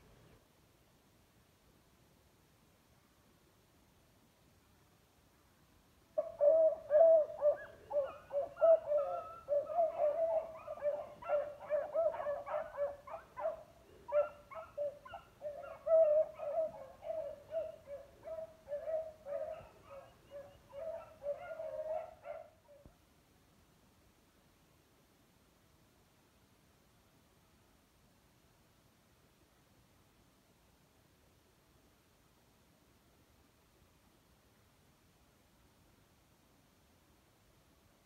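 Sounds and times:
beagles baying: 6.2 - 22.8.

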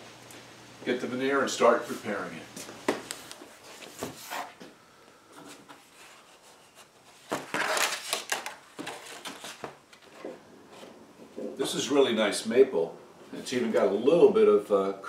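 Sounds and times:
veneer sheets rustling: 1.8 - 4.7, 5.3 - 11.6.

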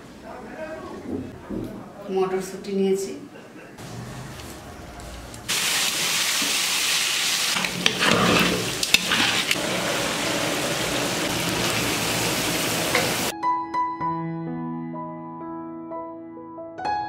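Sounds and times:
food sizzling in hot oil: 5.5 - 13.3.

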